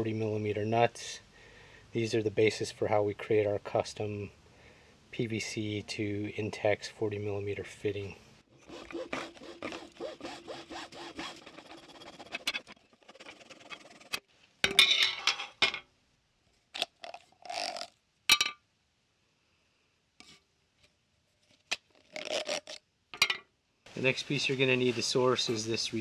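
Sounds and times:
hacksaw cutting plastic hose: 8.6 - 14.2.

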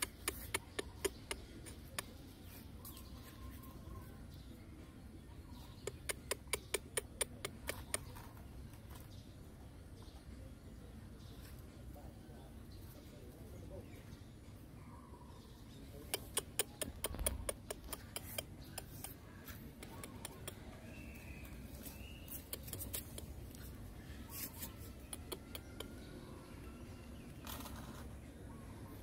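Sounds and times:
puppy claws clicking on tiles: 0.0 - 2.2, 5.8 - 8.4, 16.1 - 20.8, 21.8 - 23.6, 24.6 - 26.0.

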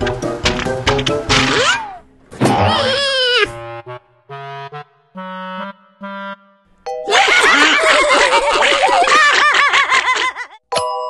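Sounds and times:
comic woodwind notes: 2.7 - 7.5
cartoon characters laughing: 7.1 - 10.6.

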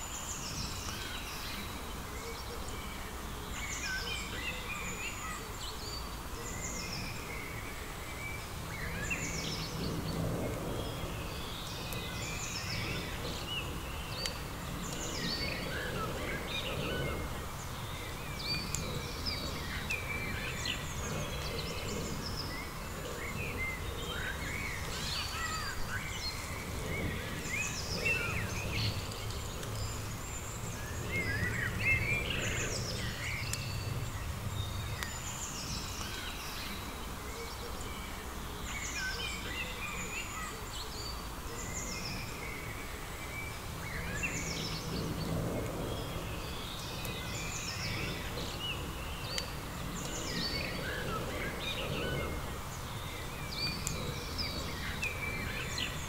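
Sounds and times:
small birds chirping and singing: 0.0 - 56.0.

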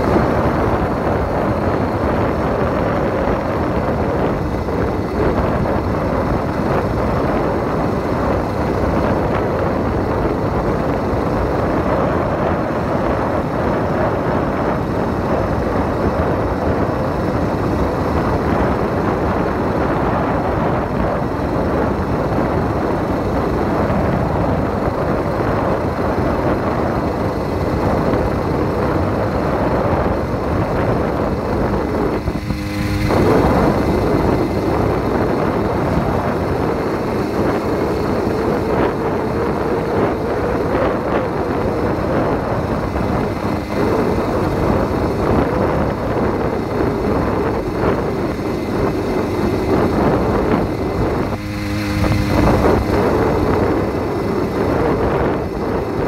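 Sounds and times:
motorbike engine running: 0.0 - 56.0.

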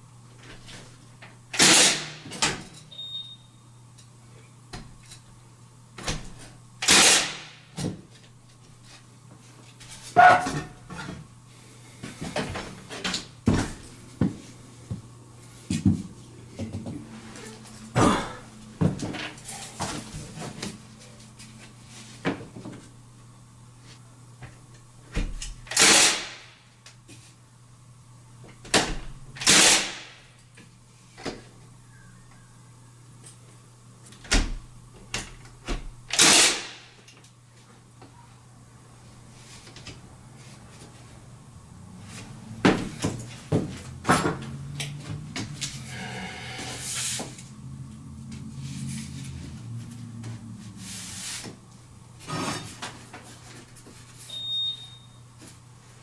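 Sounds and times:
nail gun shots: 1.6 - 2.2, 6.8 - 7.6, 25.7 - 26.5, 29.4 - 30.2, 36.1 - 36.9.

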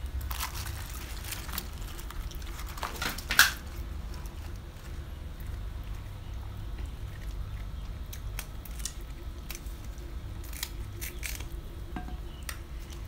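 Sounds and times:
hands tearing cabbage leaves: 0.0 - 5.0, 7.2 - 11.7
chewing crackles: 0.0 - 13.0.

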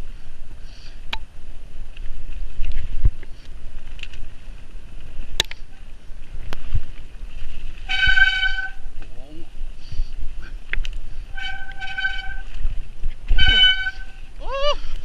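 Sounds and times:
bike rattling over rough ground: 0.0 - 15.0
wind and tyres rumbling: 0.0 - 15.0.

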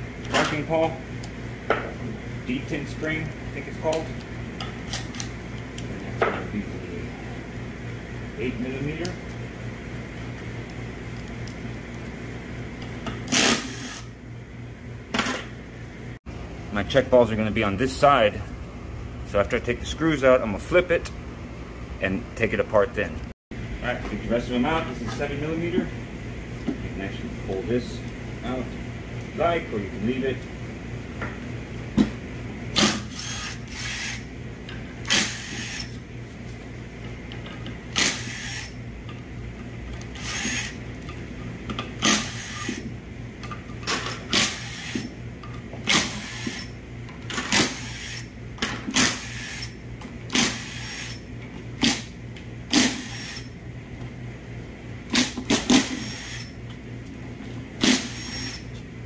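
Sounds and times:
cordless power driver spinning bolts: 37.9 - 38.8, 40.0 - 41.1.

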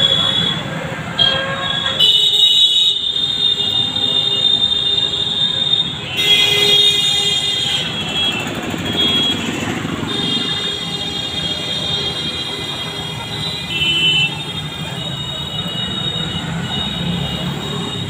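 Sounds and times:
high-pitched horns honking: 0.0 - 18.0
motorcycles passing: 5.8 - 13.9, 14.5 - 18.0.

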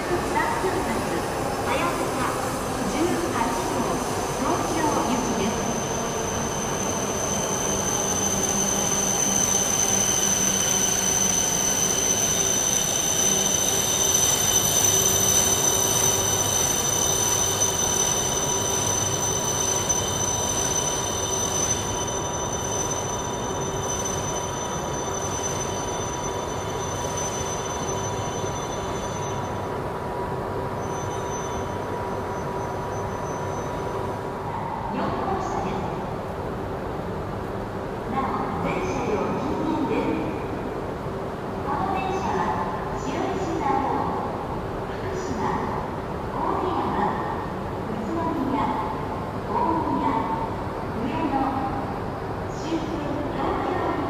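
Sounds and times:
wheel and brake squeal: 5.8 - 29.6, 30.8 - 31.8, 32.4 - 33.9.

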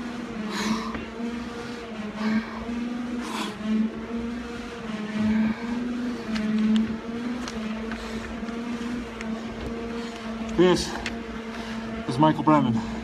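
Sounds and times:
pulsing hum: 0.0 - 13.0
heavy breathing through a mask: 0.3 - 4.0, 4.9 - 6.6, 7.7 - 12.1, 12.7 - 13.0.

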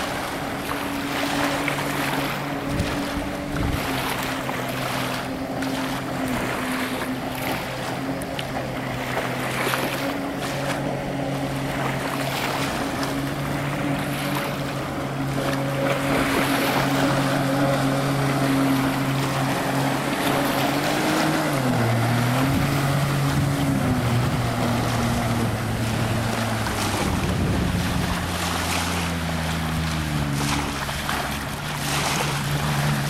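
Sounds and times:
jet ski engine drone: 0.0 - 33.0
rushing water spray: 0.0 - 33.0.

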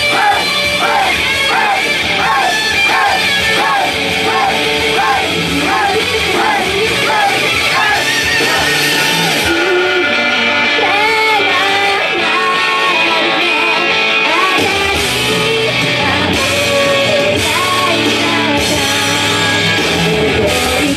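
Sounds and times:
crowd shouting along: 0.0 - 9.7
live rock song: 0.0 - 20.9
woman singing: 9.5 - 20.9.

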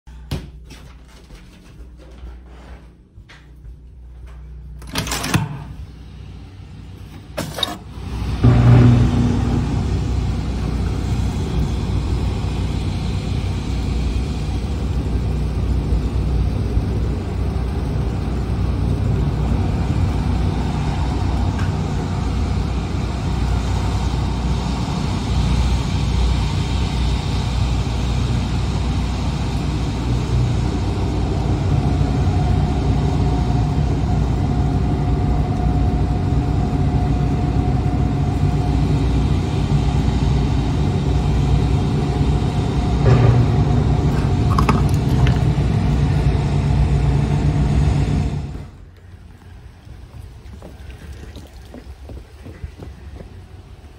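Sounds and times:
generators rumbling: 0.1 - 53.9
loud buzzing burst: 7.9 - 15.7.

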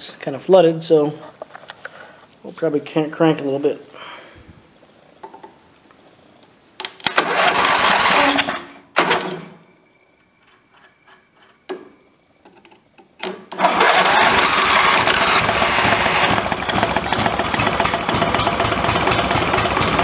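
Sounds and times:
engine cranking on starter: 7.0 - 9.6, 13.5 - 20.0
engine firing and running: 7.2 - 8.5, 13.6 - 20.0.

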